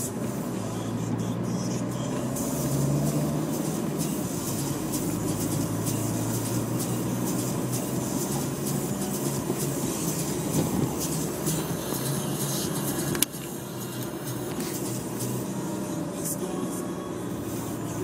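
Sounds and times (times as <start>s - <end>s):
car engine hum: 0.0s - 18.0s
tyre and road noise: 0.0s - 18.0s.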